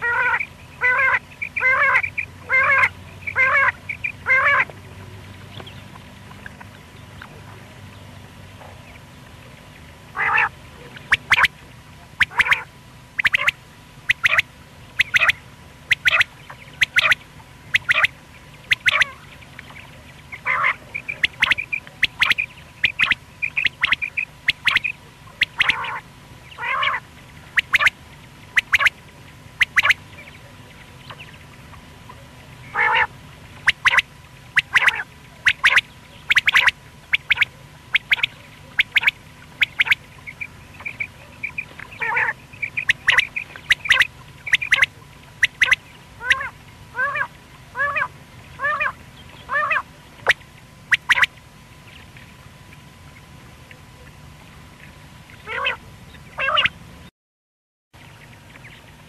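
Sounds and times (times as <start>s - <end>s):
quail calling: 0.0s - 4.7s, 10.1s - 11.5s, 12.2s - 29.0s, 29.6s - 31.3s, 32.1s - 51.3s, 55.4s - 55.8s, 56.4s - 56.8s.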